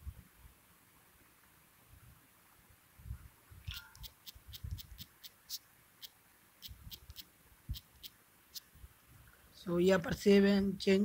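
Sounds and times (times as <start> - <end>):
touchscreen typing clicks: 3.7 - 5.6.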